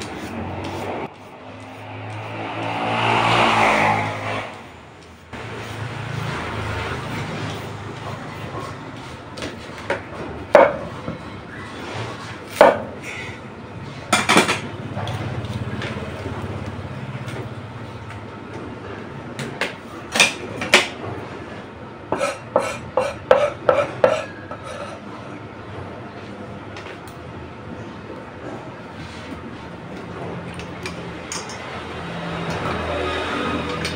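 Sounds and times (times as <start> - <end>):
utensils knocking on steel bowl: 22.2 - 24.7.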